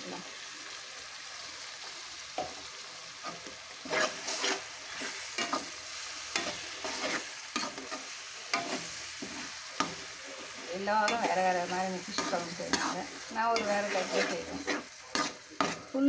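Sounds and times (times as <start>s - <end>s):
paste sizzling in hot oil: 0.0s - 16.0s
spatula scraping a pan: 3.2s - 16.0s.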